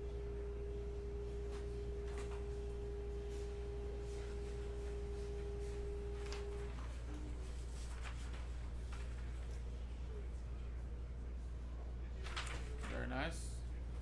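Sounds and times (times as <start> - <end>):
steady tone: 0.0 - 6.8
low electrical hum: 0.0 - 14.0.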